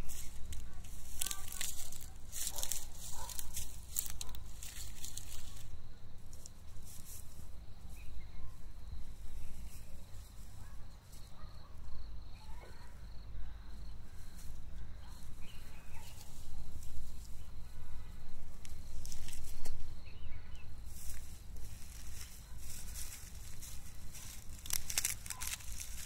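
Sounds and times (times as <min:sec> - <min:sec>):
rustling of dry straw: 0:00.0 - 0:12.6, 0:13.6 - 0:26.0
high insect trill: 0:00.0 - 0:26.0
bird chirps: 0:19.6 - 0:20.8.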